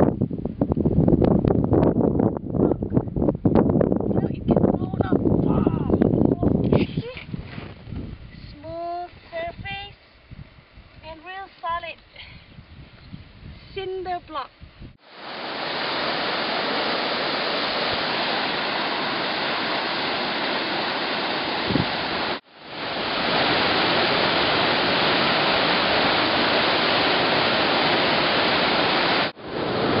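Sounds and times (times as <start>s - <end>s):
waterfall rushing: 15.0s - 30.0s.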